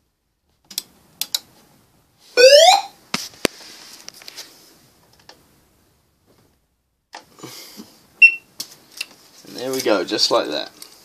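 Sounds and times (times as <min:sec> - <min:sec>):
fire alarm whoop: 0:02.4 - 0:02.9.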